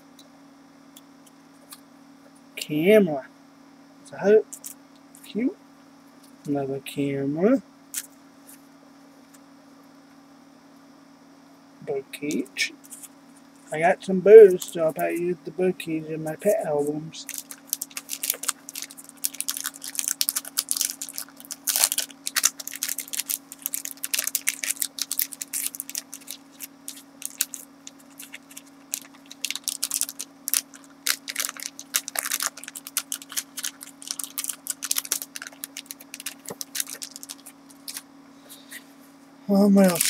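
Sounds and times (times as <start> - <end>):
low steady hum: 0.0 - 40.0
packaging crinkling: 17.2 - 38.0, 39.8 - 40.0.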